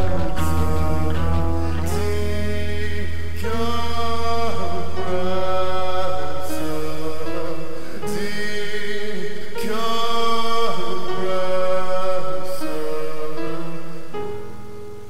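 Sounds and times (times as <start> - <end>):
electronic music sustained chords: 0.0 - 5.6.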